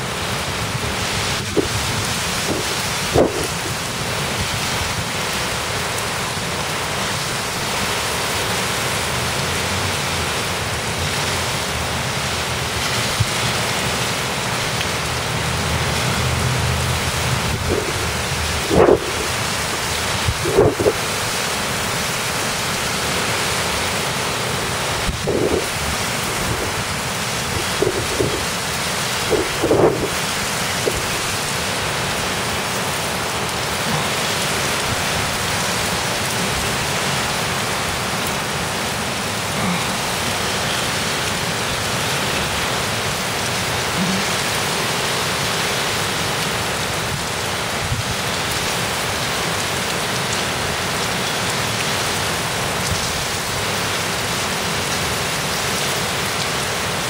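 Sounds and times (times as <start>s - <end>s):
heavy rain pouring: 0.0s - 57.0s.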